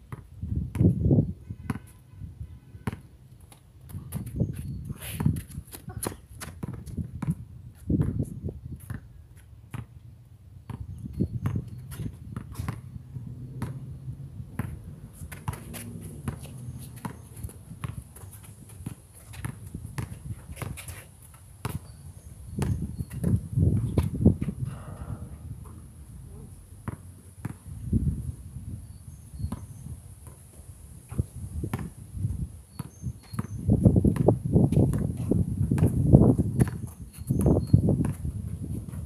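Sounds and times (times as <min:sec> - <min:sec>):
basketball bouncing on concrete: 0:00.1 - 0:01.0, 0:01.6 - 0:02.0, 0:02.8 - 0:10.0, 0:10.6 - 0:21.0, 0:21.6 - 0:25.8, 0:26.8 - 0:27.8, 0:29.4 - 0:30.4, 0:31.1 - 0:39.0
sneakers scuffing: 0:14.6 - 0:22.0.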